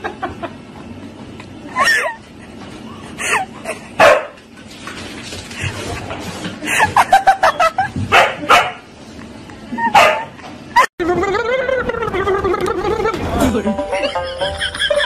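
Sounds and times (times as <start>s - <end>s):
dog barking sharply: 10.0s - 10.3s.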